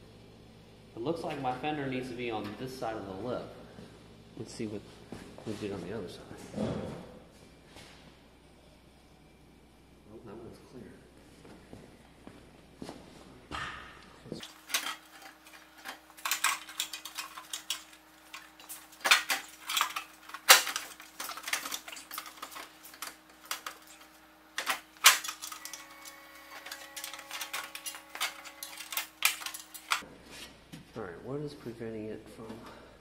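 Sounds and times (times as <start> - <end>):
faint steady hum: 0.0 - 33.0
metal parts and tools clinking: 14.4 - 30.0.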